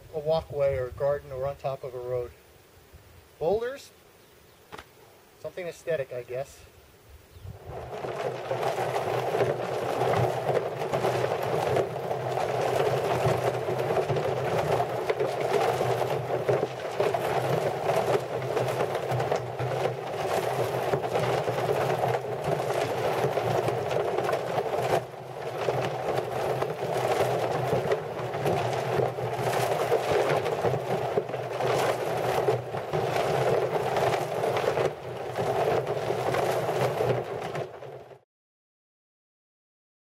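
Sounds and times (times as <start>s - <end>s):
stones tumbling in rotating drum: 7.6s - 38.2s.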